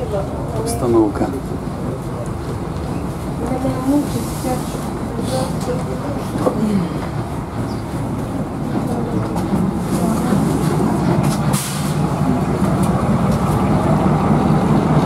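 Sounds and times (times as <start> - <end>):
diesel locomotive idling: 0.0 - 15.0
brief hiss: 11.5 - 12.0.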